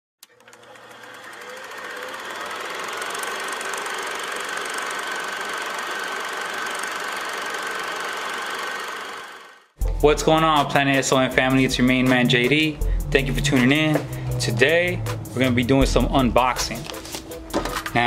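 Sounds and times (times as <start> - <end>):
film projector whirring: 0.2 - 9.8.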